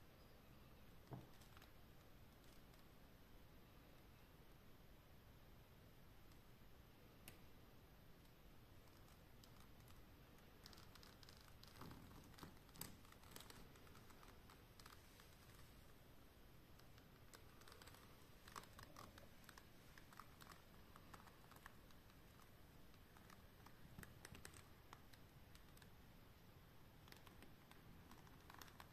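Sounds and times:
small clicks and rustles: 0.9s - 3.0s, 8.2s - 16.0s, 16.6s - 28.9s.

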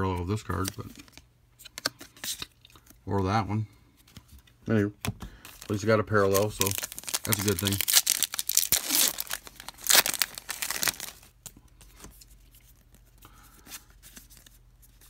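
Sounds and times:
faint handling of cards: 0.0s - 15.0s
wrapper tearing and crinkling: 5.6s - 11.4s.

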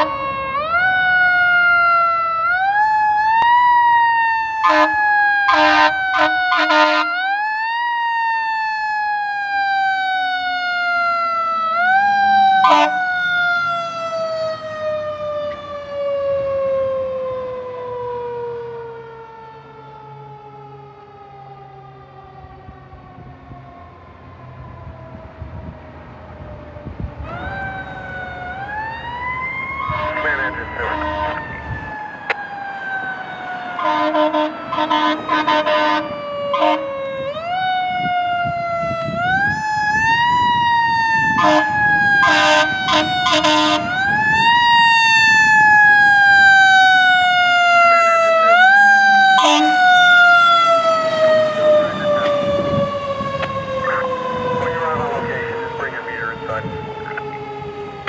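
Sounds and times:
fire engine siren wailing: 0.0s - 58.0s
short horn blasts: 33.8s - 36.0s, 41.4s - 43.8s.

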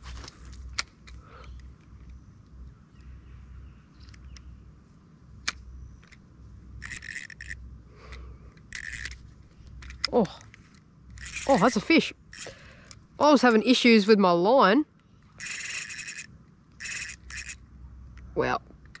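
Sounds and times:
fishing line scraping and rubbing: 6.8s - 7.6s, 8.7s - 9.2s, 11.2s - 12.6s, 15.4s - 17.6s
reel click: 6.8s - 7.6s, 8.7s - 9.2s, 11.2s - 11.8s, 15.4s - 17.6s.

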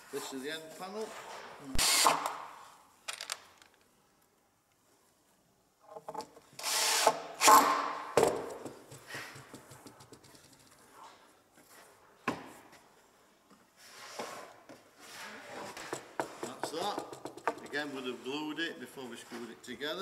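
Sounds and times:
sharp wooden knocks: 7.0s - 10.1s, 15.8s - 17.8s
plywood panels scraping: 13.8s - 18.4s.

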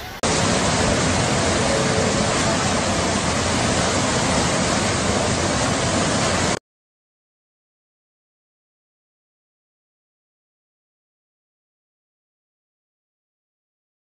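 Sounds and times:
floodwater roaring torrent: 0.0s - 6.6s.

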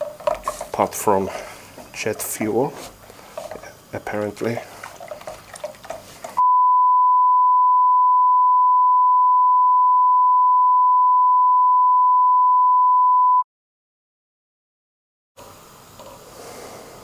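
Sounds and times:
electronic test tone beep: 6.4s - 13.4s.

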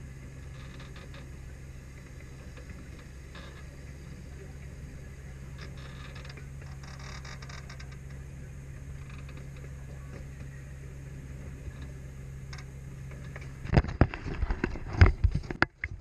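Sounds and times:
ride machinery humming: 0.0s - 16.0s.

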